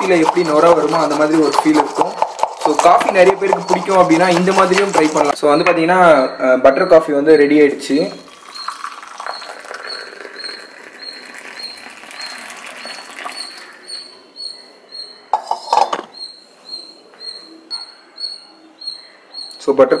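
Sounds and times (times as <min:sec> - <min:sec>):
coffee pouring into a mug: 0:08.2 - 0:13.9.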